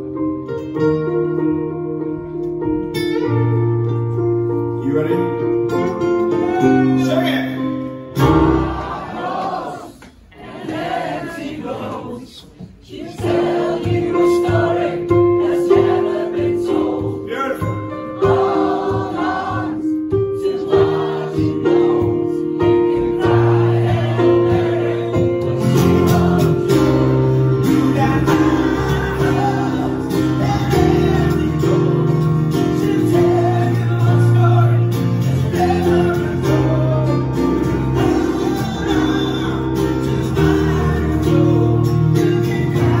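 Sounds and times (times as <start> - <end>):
piano chords: 0.0 - 12.3, 12.9 - 43.0
acoustic guitar: 0.0 - 43.0
man singing: 27.6 - 43.0.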